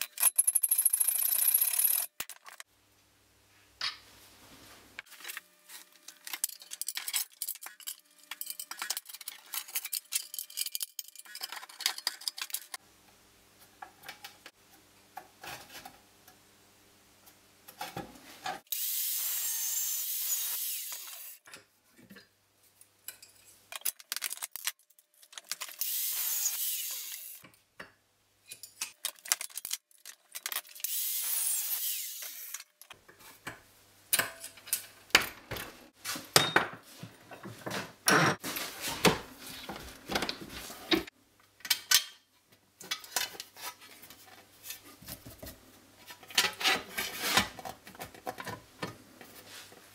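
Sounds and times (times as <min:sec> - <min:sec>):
metal tools clicking and knocking: 0:00.0 - 0:02.7, 0:06.2 - 0:12.8.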